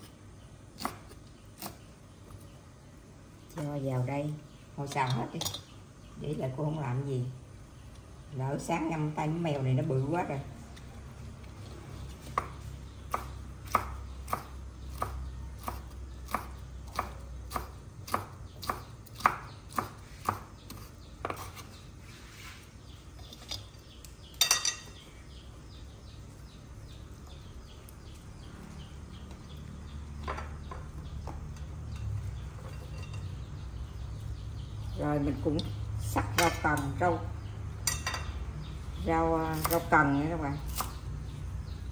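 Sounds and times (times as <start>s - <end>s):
knife chopping on wooden board: 12.3s - 21.6s.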